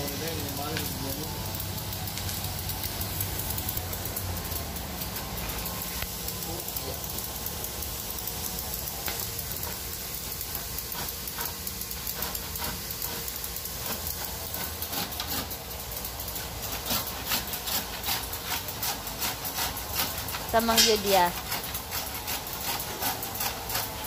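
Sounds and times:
steady background hiss: 0:00.0 - 0:24.0
hand saw cutting timber: 0:05.3 - 0:24.0.

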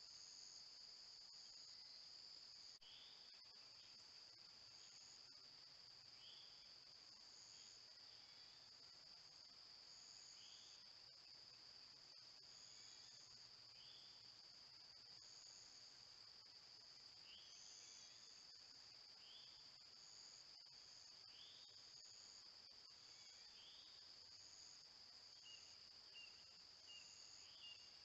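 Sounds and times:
insect buzz: 0:00.0 - 0:28.0
insect chirps: 0:00.0 - 0:28.0
insect high-pitched trill: 0:12.1 - 0:28.0.

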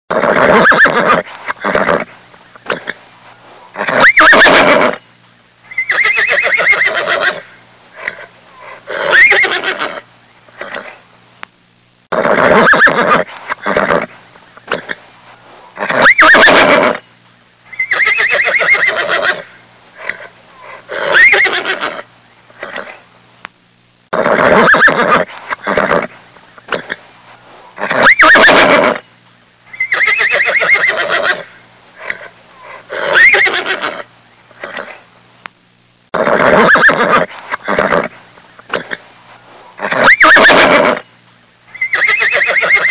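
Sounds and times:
horse whinnying: 0:00.1 - 0:03.0, 0:03.8 - 0:05.0, 0:05.7 - 0:11.0, 0:12.1 - 0:14.1, 0:15.8 - 0:17.0, 0:17.7 - 0:23.0, 0:24.2 - 0:27.0, 0:27.8 - 0:29.0, 0:29.7 - 0:35.0, 0:36.2 - 0:38.1, 0:39.8 - 0:41.0, 0:41.8 - 0:42.9.

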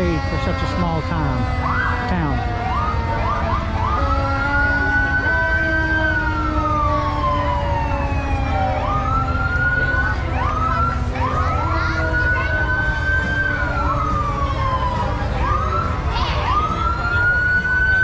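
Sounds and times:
fire truck siren wailing: 0:00.0 - 0:18.0.

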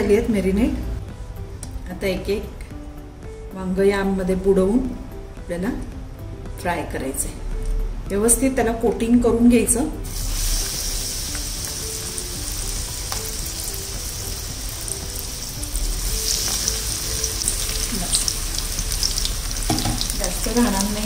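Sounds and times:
deep-frying sizzle with crackles: 0:10.0 - 0:21.0.

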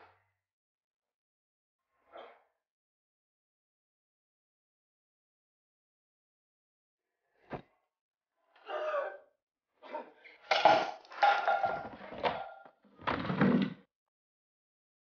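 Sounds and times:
objects clattering and knocking: 0:10.4 - 0:13.8.

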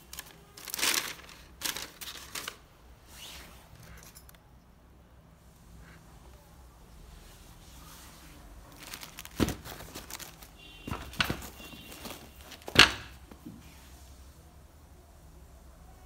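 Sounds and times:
knocks and thumps of handling: 0:08.8 - 0:13.6.

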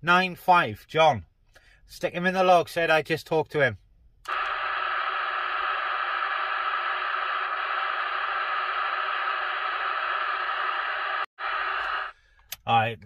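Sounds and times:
radio static hissing: 0:04.3 - 0:12.1.

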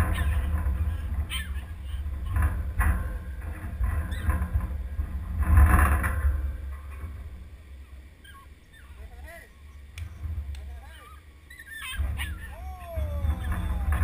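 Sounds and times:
wind buffeting microphone: 0:12.0 - 0:14.0.

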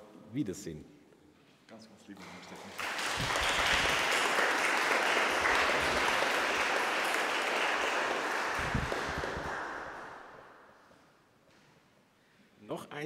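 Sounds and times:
congregation applauding: 0:02.2 - 0:10.7.

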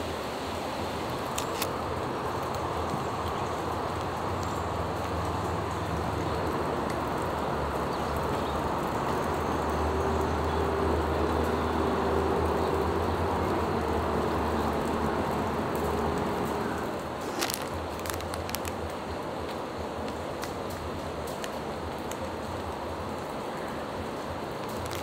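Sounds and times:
traffic rumble: 0:00.0 - 0:25.0
plastic wrapper crinkling: 0:17.2 - 0:18.8, 0:24.7 - 0:25.0.

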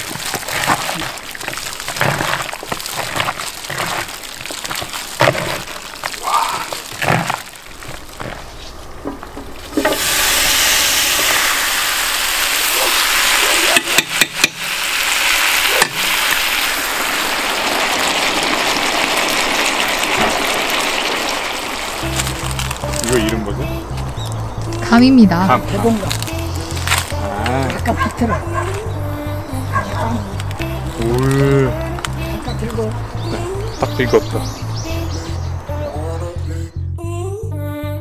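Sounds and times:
hands squelching kneading marinade: 0:00.0 - 0:09.6
meat sizzling in a pan: 0:09.5 - 0:23.2.

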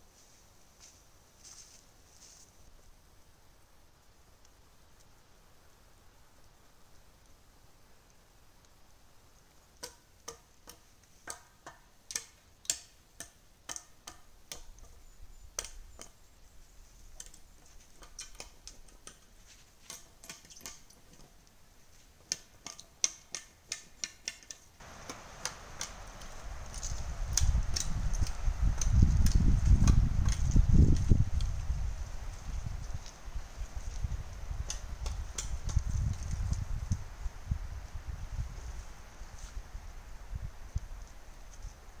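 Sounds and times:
footsteps crunching on dry leaves: 0:00.2 - 0:02.6, 0:24.8 - 0:34.1.

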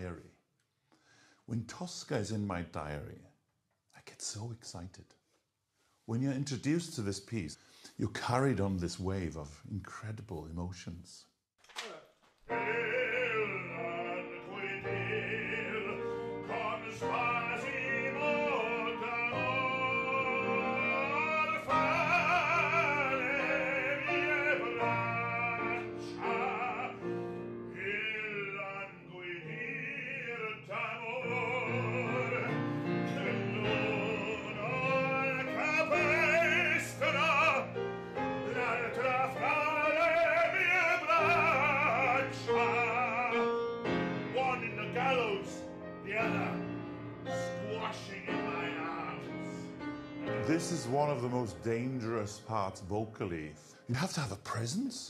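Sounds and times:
grand piano: 0:12.4 - 0:55.0
man singing opera: 0:12.5 - 0:54.8.

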